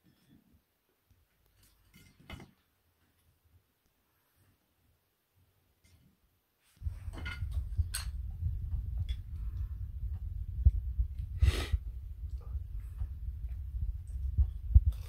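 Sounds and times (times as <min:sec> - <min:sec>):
low rumbling chewing bumps: 0:06.8 - 0:15.0.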